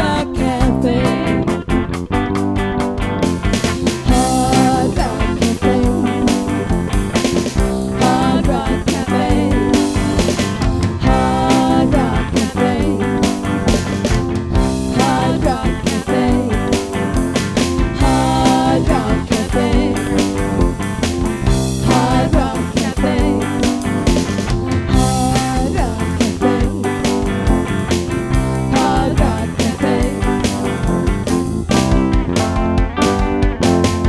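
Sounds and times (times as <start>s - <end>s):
woman singing: 0.0s - 1.4s, 4.1s - 6.4s, 7.9s - 9.9s, 11.0s - 13.3s, 14.9s - 16.9s, 18.0s - 20.3s, 21.8s - 23.8s, 24.9s - 26.9s, 28.7s - 30.5s
bass guitar: 0.0s - 34.0s
drums: 0.0s - 34.0s
electric guitar: 0.0s - 34.0s
keyboard: 0.0s - 34.0s.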